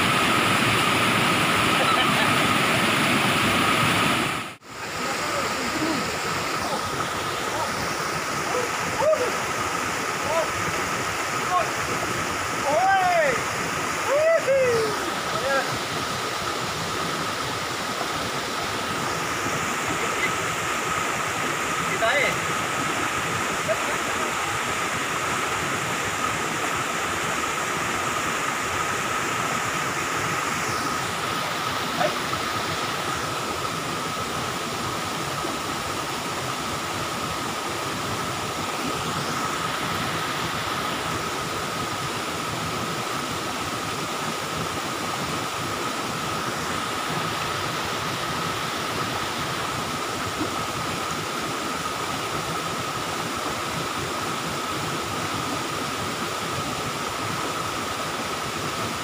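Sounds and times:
waterfall rushing: 0.0 - 59.0.

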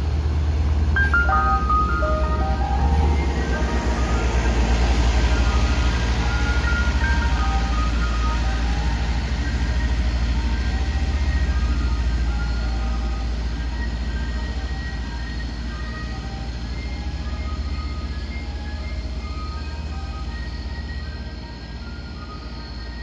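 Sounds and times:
low truck engine drone: 0.0 - 23.0
ice cream truck chime jingle: 1.0 - 23.0.

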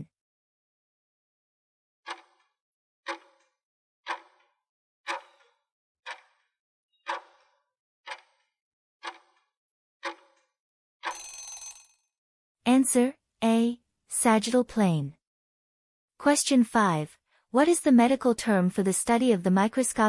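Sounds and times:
clock ticking: 2.1 - 2.4, 3.1 - 3.4, 4.1 - 4.4, 5.1 - 6.4, 7.1 - 7.4, 8.1 - 8.4, 9.0 - 9.4, 10.0 - 10.2.

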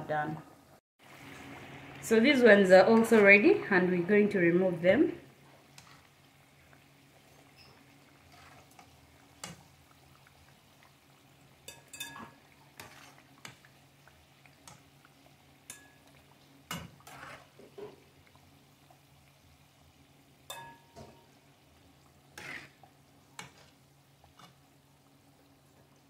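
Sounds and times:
faint frying sizzle: 0.0 - 26.0
metal spatula clinking on pan: 11.6 - 12.4, 15.6 - 16.9, 20.5 - 21.2.

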